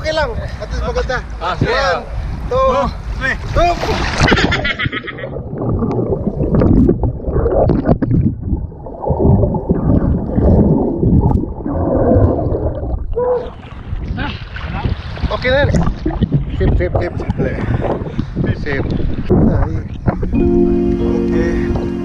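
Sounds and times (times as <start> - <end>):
clicks and knocks underwater: 3.9 - 20.3
underwater gurgling and bubbles: 4.2 - 17.4.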